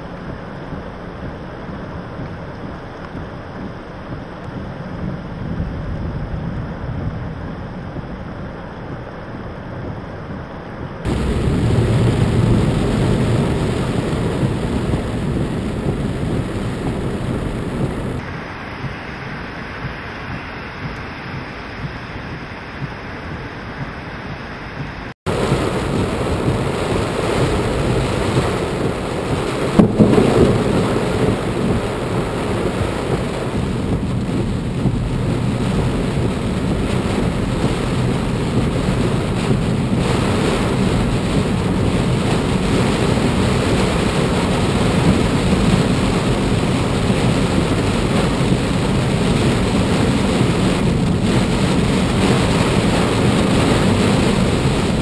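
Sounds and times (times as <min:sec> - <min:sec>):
heavy rain pouring: 0:11.0 - 0:55.0
loud thunder crack: 0:11.1 - 0:18.3, 0:25.3 - 0:55.0.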